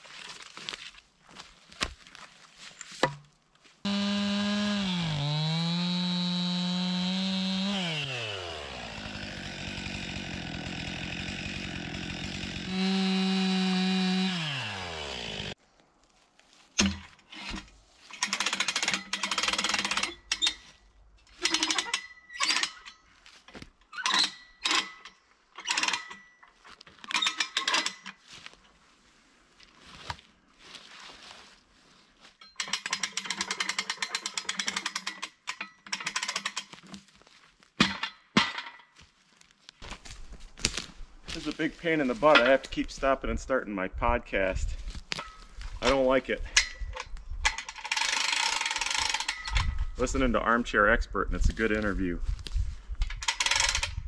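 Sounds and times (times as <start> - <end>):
chainsaw running: 3.9 - 15.6, 18.2 - 20.1, 47.7 - 49.6, 53.2 - 54.0
jack ratchet clicking: 47.5 - 49.7, 53.2 - 54.0.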